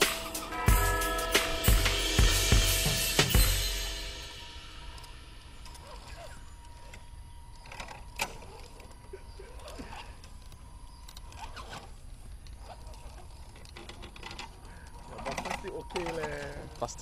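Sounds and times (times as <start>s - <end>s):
rc truck motor whirring: 4.9s - 17.0s.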